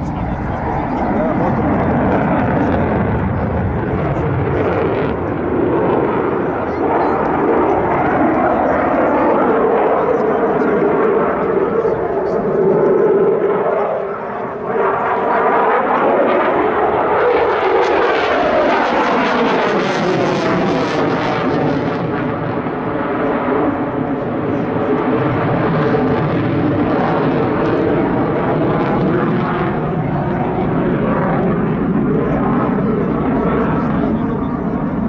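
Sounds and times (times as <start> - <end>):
fighter jet engine roar: 0.0 - 35.0.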